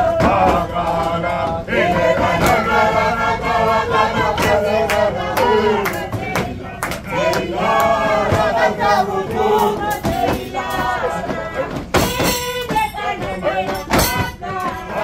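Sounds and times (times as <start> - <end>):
drum strikes: 0.0 - 15.0.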